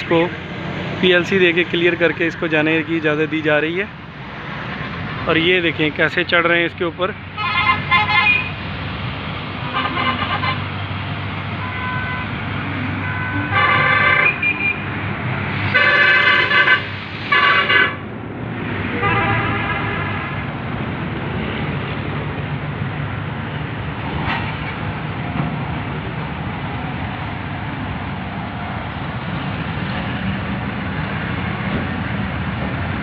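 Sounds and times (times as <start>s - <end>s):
train coaches rumbling on rails: 0.0s - 11.6s, 12.2s - 33.0s
train horn blasts: 13.0s - 14.8s, 15.7s - 18.0s.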